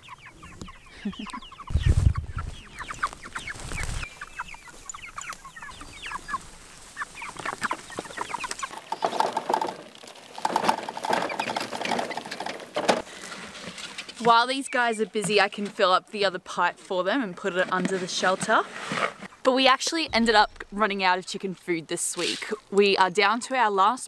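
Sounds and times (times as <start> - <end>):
chickens peeping and clucking: 0.0 - 23.9
low rumble: 20.1 - 21.0.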